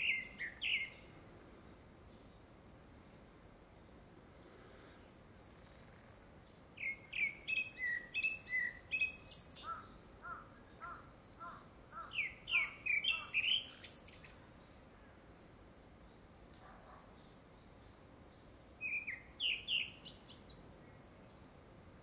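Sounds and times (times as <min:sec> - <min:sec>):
thrush singing whistles: 0:00.0 - 0:01.1, 0:06.8 - 0:09.7, 0:12.2 - 0:14.4, 0:18.8 - 0:20.6.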